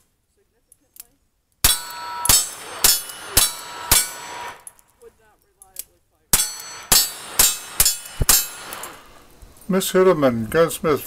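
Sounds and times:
steel target ringing: 0:01.6 - 0:04.8, 0:06.3 - 0:09.2
handgun shots: 0:01.6 - 0:04.9, 0:06.3 - 0:09.1.

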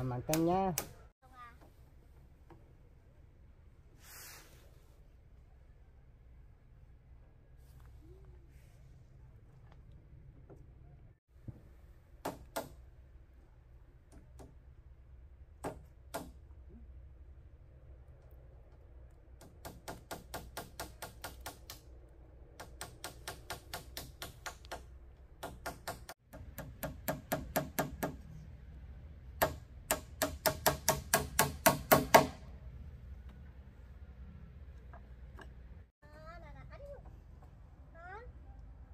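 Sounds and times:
hammer striking bamboo poles: 0:00.0 - 0:01.0, 0:12.2 - 0:12.8, 0:15.6 - 0:16.4, 0:19.4 - 0:21.9, 0:22.6 - 0:28.2, 0:29.3 - 0:32.5.

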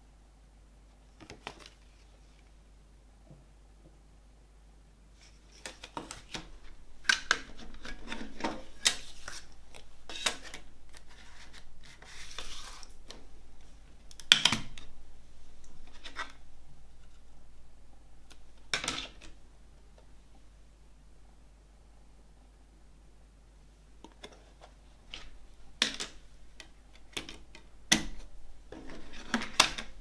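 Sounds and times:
plastic scrape: 0:05.2 - 0:13.2.

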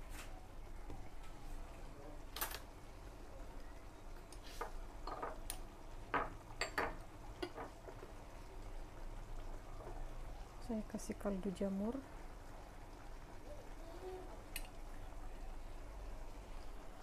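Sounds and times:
low steady hum: 0:00.0 - 0:17.0
kitchenware clinking: 0:04.6 - 0:07.8.

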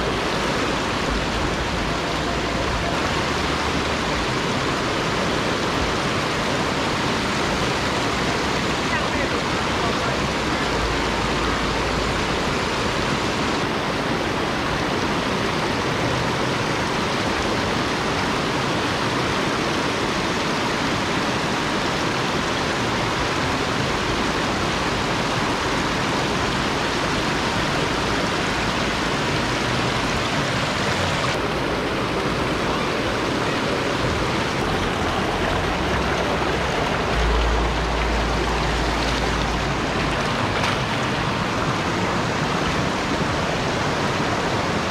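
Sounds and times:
river rushing over boulders: 0:00.0 - 0:44.9
low rumble: 0:33.9 - 0:42.0.

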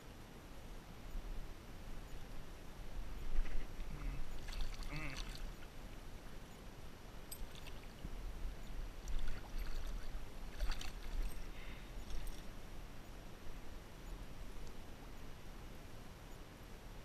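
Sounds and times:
low steady rumble: 0:00.0 - 0:17.0
water splashing: 0:04.0 - 0:05.7, 0:07.4 - 0:08.0, 0:09.0 - 0:11.4.

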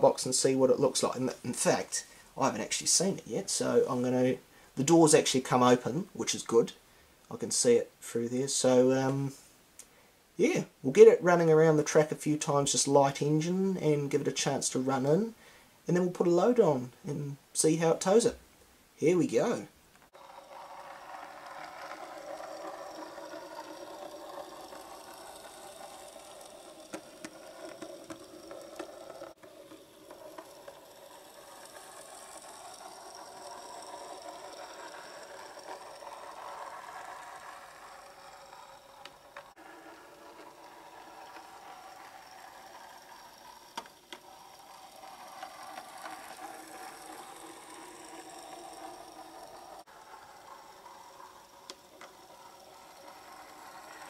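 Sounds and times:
model locomotive motor whirring: 0:20.0 - 0:54.0.

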